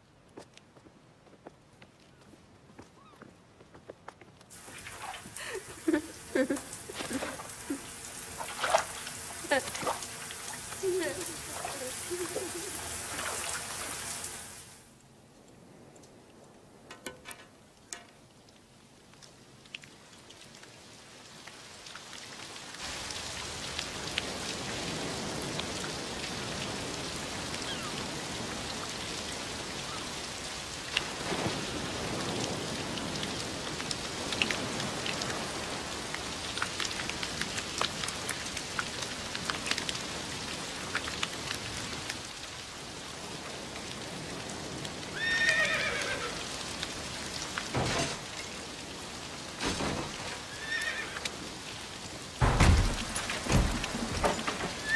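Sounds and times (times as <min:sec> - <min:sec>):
drips and splashes: 0:04.5 - 0:54.9
heavy rain on a street: 0:04.5 - 0:54.9
low thump: 0:52.4 - 0:54.4.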